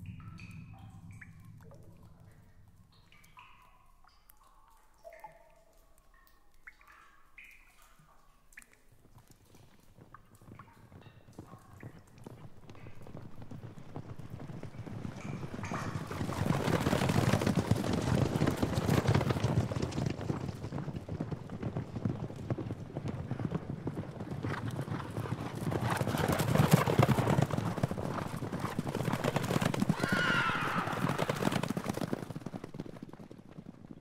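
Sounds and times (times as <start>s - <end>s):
horse hoofbeats at a run: 8.8s - 34.0s
horse whinnying: 29.9s - 31.6s.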